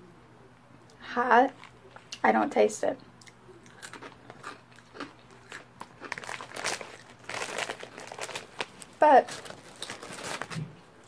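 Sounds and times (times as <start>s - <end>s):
chip bag crinkling: 3.7s - 10.8s.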